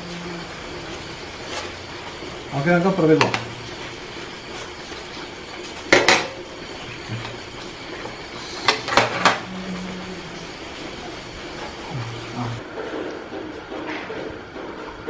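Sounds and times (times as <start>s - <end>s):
pan and lid clanking: 5.9s - 6.4s, 8.6s - 9.5s.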